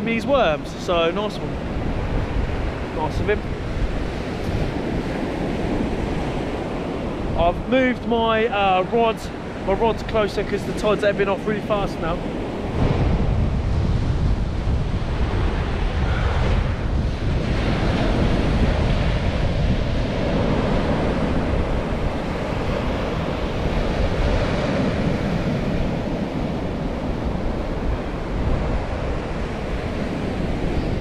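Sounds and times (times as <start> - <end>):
surf breaking on beach: 0.0 - 31.0
wind buffeting microphone: 0.0 - 31.0.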